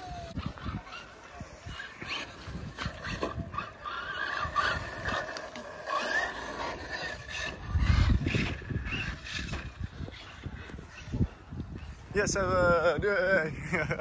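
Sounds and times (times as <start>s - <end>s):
tyres scrabbling on dirt: 0.0s - 11.2s
rc car motor whine: 0.0s - 12.2s.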